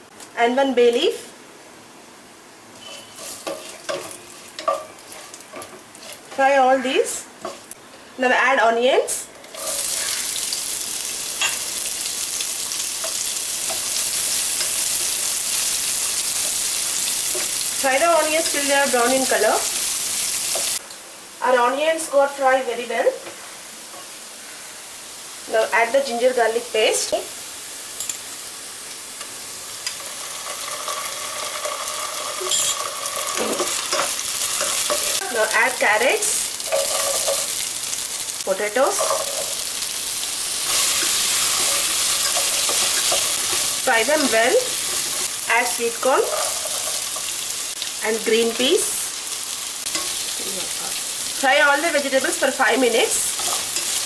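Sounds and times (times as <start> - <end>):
onions sizzling in hot oil: 2.7 - 8.7, 9.4 - 54.0
wooden spatula scraping a pot: 2.8 - 6.5.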